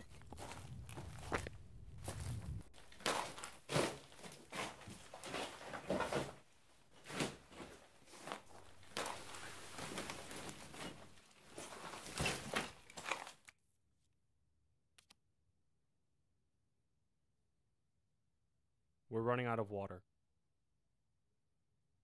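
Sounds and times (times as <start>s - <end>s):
footsteps crunching on rubble: 0.0s - 13.4s.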